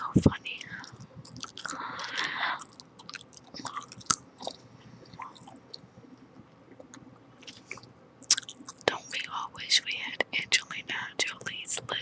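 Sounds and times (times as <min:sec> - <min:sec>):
gum chewing mouth clicks: 0:00.7 - 0:09.0.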